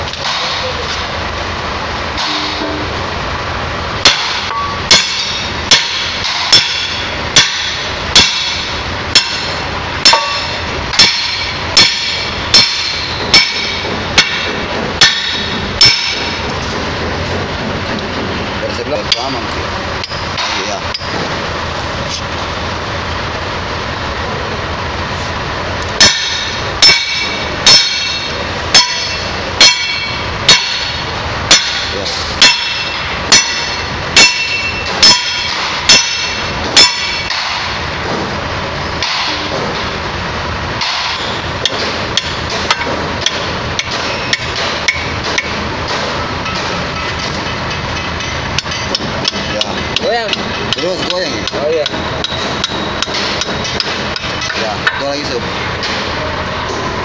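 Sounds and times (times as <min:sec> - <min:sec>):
hammer striking steel: 0:00.0 - 0:01.1, 0:02.1 - 0:03.0, 0:04.0 - 0:21.5, 0:26.0 - 0:40.0, 0:40.8 - 0:57.0
steady background noise: 0:00.0 - 0:57.0.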